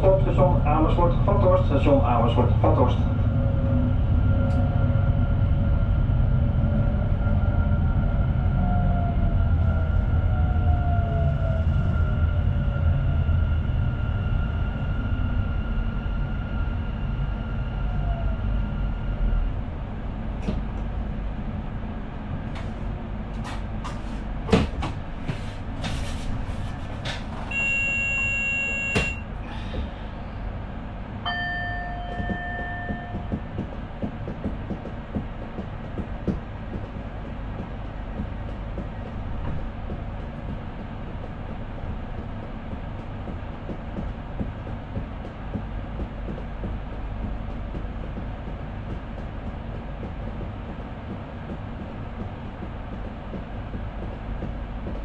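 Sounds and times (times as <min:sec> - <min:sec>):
traction equipment whine: 0:00.0 - 0:22.4
train running rumble: 0:00.0 - 0:55.0
high beeps: 0:27.5 - 0:29.2.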